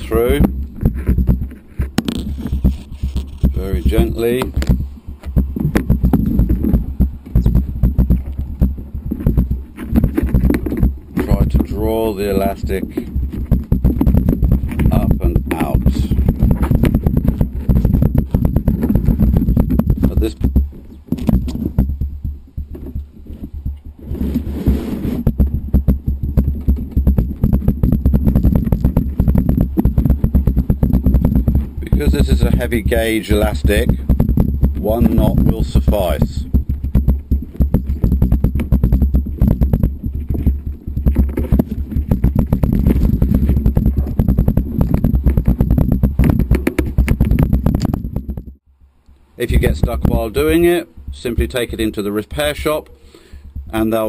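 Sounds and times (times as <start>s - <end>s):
steady low rumble: 0.0s - 52.8s
small knocks and rubbing: 0.0s - 54.0s
low thumps on tabletop: 0.4s - 23.8s, 24.6s - 48.6s
scraping hiss: 23.4s - 25.2s.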